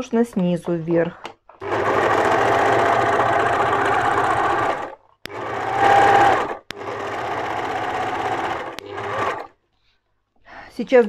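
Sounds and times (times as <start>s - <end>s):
overlocker sewing: 1.6s - 9.6s.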